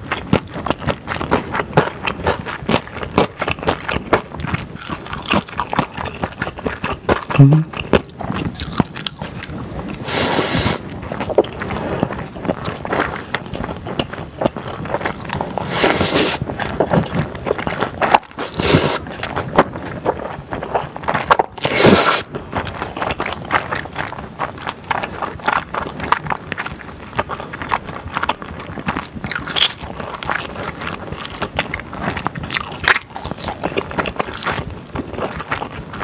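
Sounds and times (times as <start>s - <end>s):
wet chewing: 0.0s - 36.0s
noodle slurping: 9.2s - 13.8s, 14.5s - 19.4s, 20.2s - 23.8s.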